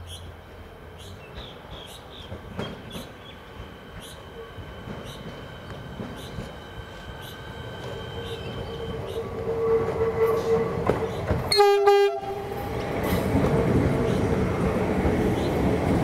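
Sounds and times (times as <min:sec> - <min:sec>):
electric train running whine: 0:00.3 - 0:16.0
train horn blasts: 0:08.8 - 0:12.6.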